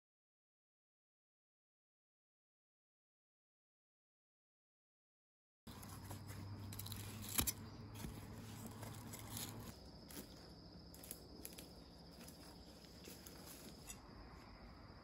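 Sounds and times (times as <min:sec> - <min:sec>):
dry leaves crackling: 0:05.7 - 0:14.0
insects chirring: 0:05.7 - 0:15.0.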